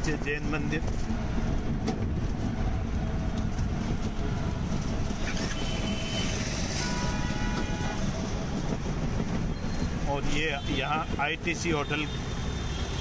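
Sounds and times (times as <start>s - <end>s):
road and wind noise: 0.0s - 13.0s
vehicle horn: 5.3s - 8.2s.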